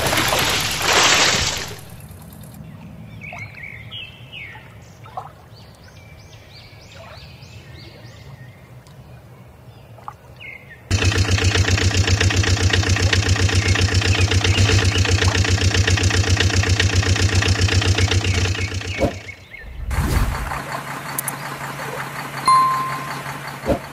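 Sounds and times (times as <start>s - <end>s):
quiet engine hum: 10.9s - 23.9s
truck engine idling: 10.9s - 23.9s
short electronic beep: 22.5s - 23.4s.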